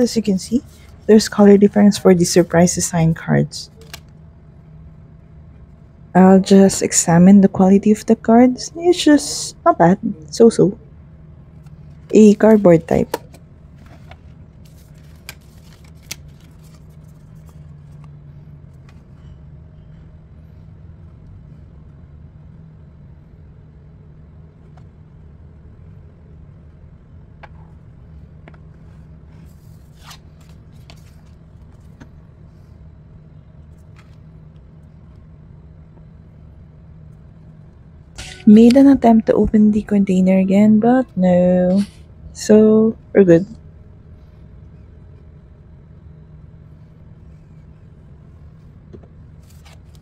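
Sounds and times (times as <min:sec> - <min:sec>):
low background hum: 0:00.0 - 0:50.0.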